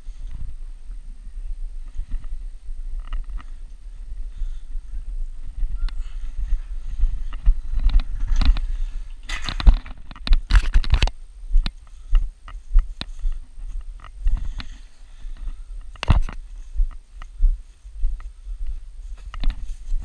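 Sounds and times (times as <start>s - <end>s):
footsteps: 1.8s - 20.0s
camera handling rumble: 1.9s - 3.7s, 5.5s - 14.8s, 15.4s - 17.3s, 19.2s - 20.0s
rustling and scraping: 5.4s - 20.0s.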